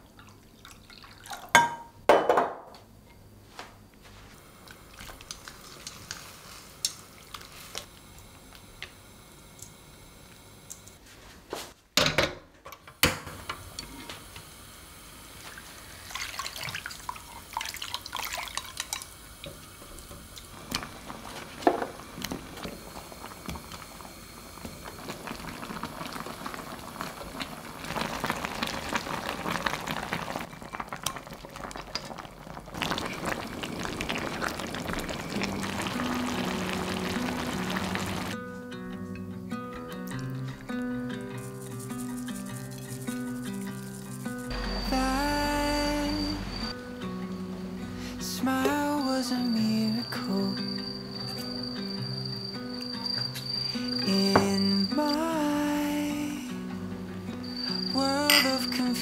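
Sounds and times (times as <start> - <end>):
food simmering and bubbling: 4.4 - 10.9, 13.5 - 38.4, 40.0 - 46.8.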